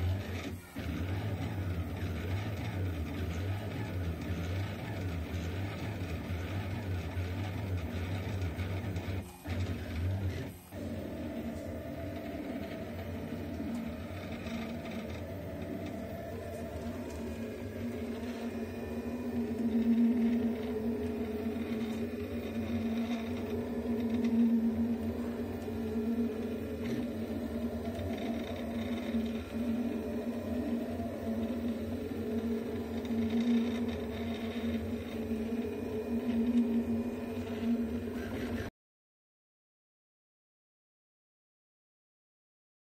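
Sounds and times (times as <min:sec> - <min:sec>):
printer stepper motors whining: 0:00.0 - 0:38.7
steady low rumble: 0:11.4 - 0:38.2.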